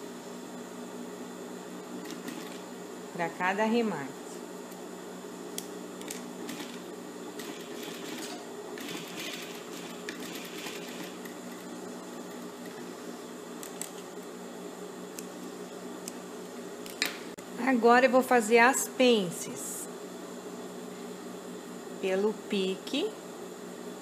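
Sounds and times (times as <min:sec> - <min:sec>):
sewing machine stitching: 0:07.4 - 0:11.4.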